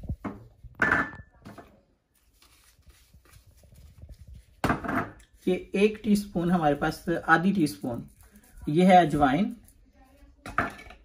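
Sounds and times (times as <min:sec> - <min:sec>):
glass bowls knocking and clinking: 0:00.3 - 0:01.3, 0:04.6 - 0:05.2, 0:10.5 - 0:11.0
rustling: 0:02.1 - 0:04.6.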